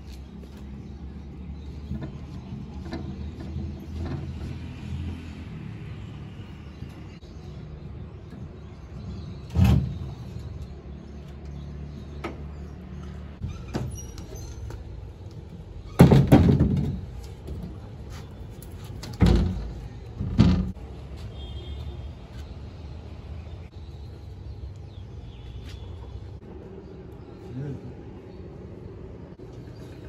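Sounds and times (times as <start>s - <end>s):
plywood panels knocking and thumping: 16.0s - 17.8s, 18.9s - 20.8s.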